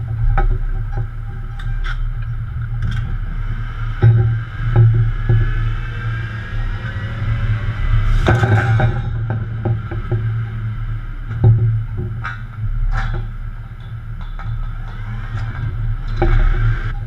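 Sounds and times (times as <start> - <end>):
engine droning: 0.0 - 17.0
steel pipes clanking: 0.0 - 17.0.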